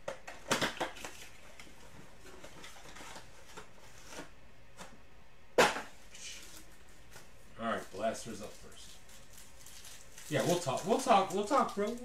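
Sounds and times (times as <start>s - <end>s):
cardboard and foil rustling: 0.7s - 4.3s, 6.1s - 12.0s.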